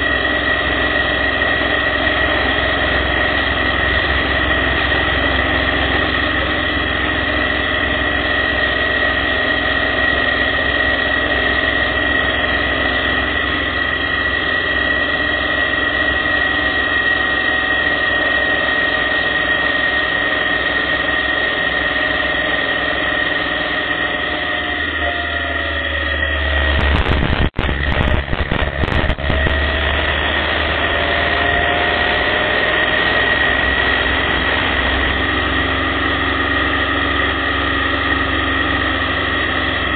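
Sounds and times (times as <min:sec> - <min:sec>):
high-pitched whine: 0:00.0 - 0:39.9
motorcycle engine running: 0:00.0 - 0:39.9
low rumble with crackles: 0:26.7 - 0:29.7
wind noise: 0:26.7 - 0:29.7.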